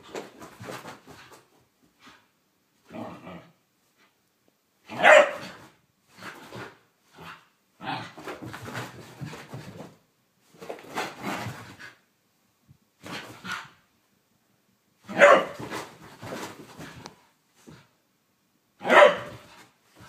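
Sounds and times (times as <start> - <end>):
dog barking: 4.9 - 5.5, 15.1 - 15.6, 18.8 - 19.4.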